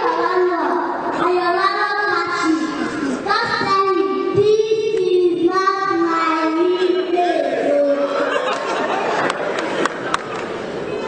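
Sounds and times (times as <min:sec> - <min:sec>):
child singing: 0:00.1 - 0:08.2.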